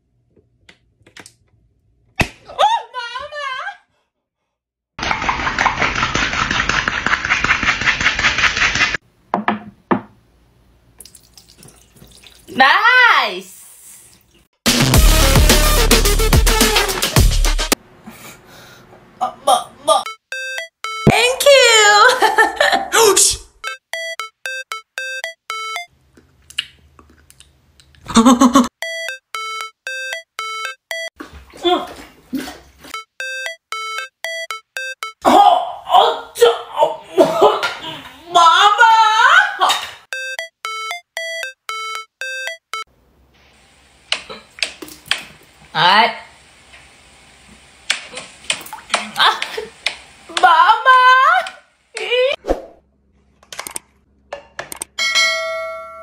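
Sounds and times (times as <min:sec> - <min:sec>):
electronic beeping melody: 0:20.1 - 0:21.2, 0:23.6 - 0:25.9, 0:28.8 - 0:31.1, 0:33.0 - 0:35.2, 0:40.1 - 0:42.9.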